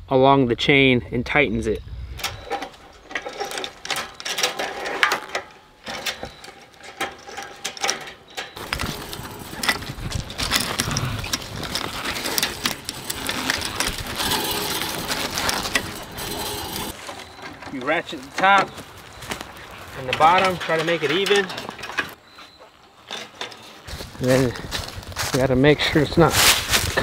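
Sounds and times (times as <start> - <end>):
chain links clinking: 2.3 - 17.4
ratchet clicking: 8.6 - 17.0.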